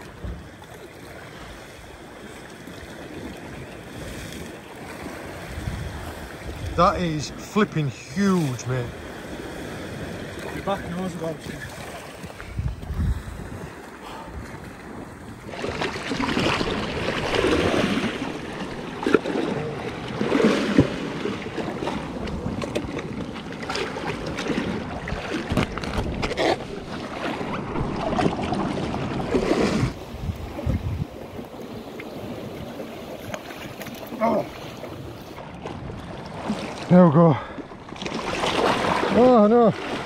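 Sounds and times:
sea water splashing over rocks: 0.0 - 40.0
wind on microphone: 3.9 - 7.2, 11.4 - 32.9.

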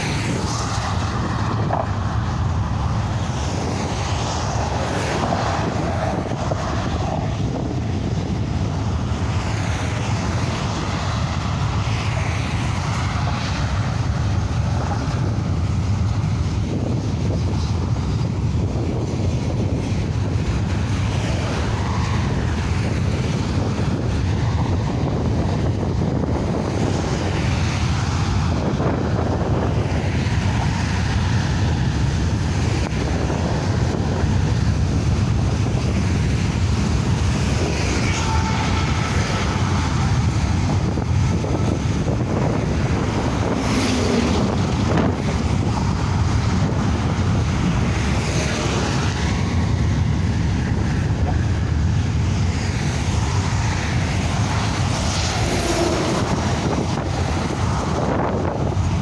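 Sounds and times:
freight train rolling by: 0.0 - 59.0
road traffic rumble: 0.0 - 59.0
wind buffeting microphone: 0.0 - 59.0
lorry passing: 36.4 - 52.2, 53.0 - 59.0.

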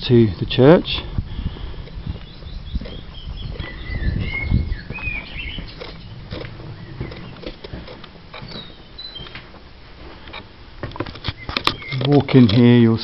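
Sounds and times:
footsteps on stone: 0.9 - 12.5
bird chirps: 1.9 - 7.7, 8.3 - 9.5, 11.2 - 12.3
camera handling rumble: 5.7 - 8.7, 10.3 - 12.7.

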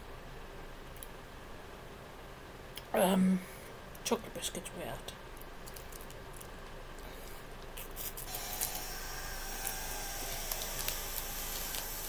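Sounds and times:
sweet wrapper crinkling: 5.4 - 6.7, 7.8 - 12.0
steady hiss: 7.1 - 12.0.

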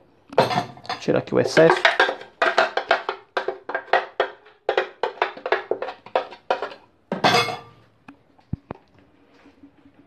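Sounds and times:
metal spoon knocking blender jar: 0.4 - 7.7.

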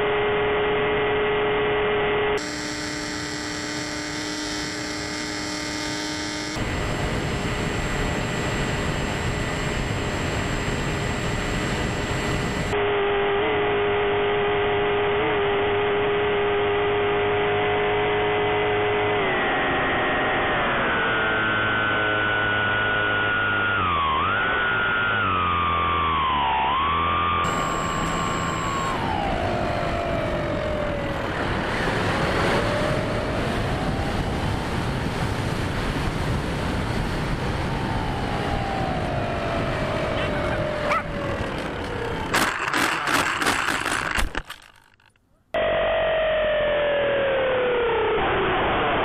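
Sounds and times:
model plane motor whining: 2.3 - 18.3, 20.2 - 34.2, 37.8 - 45.2.

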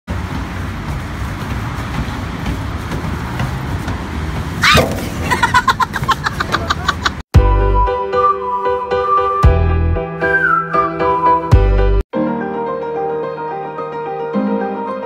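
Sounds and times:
road traffic noise: 0.1 - 7.3
woman exclaiming loudly: 4.6 - 4.8
woman laughing: 5.2 - 7.2.

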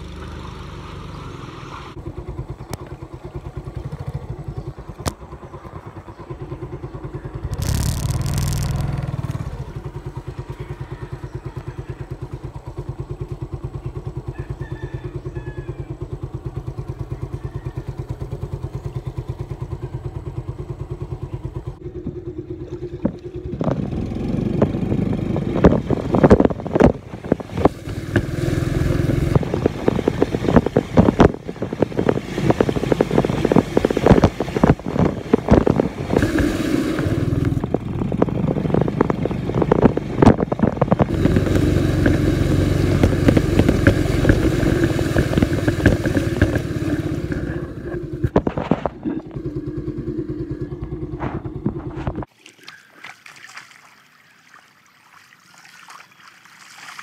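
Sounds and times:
scooter engine running: 0.0 - 52.3
knocks and rubbing noises: 7.5 - 9.5, 29.2 - 49.6, 51.0 - 52.3.

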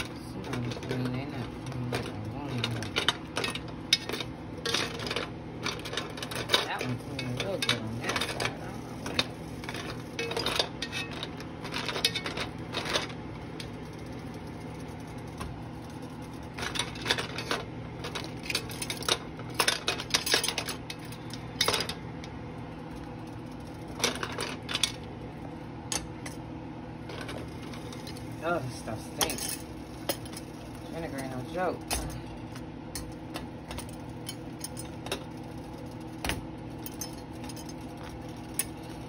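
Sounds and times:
metal knobs clinking against pot: 0.0 - 13.8, 27.1 - 32.2, 32.9 - 39.0
steady low hum: 0.0 - 39.0.

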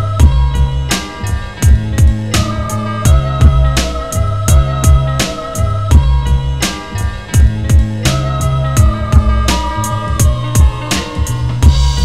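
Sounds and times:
held chords: 0.0 - 12.0
kick drums: 0.2 - 0.8, 1.6 - 2.3, 3.1 - 3.8, 4.5 - 5.2, 5.9 - 6.4, 7.4 - 8.0, 8.8 - 9.4, 10.2 - 10.8, 11.6 - 12.0.

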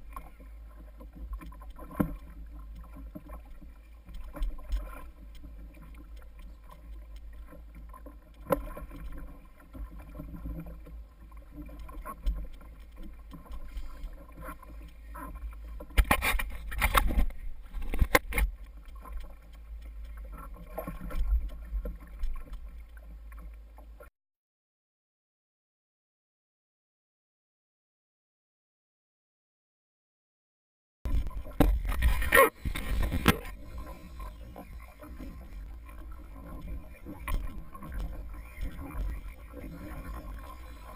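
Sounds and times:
water sloshing against a hull: 0.0 - 24.1, 31.1 - 40.9
wind rumbling on microphone: 31.1 - 40.9.

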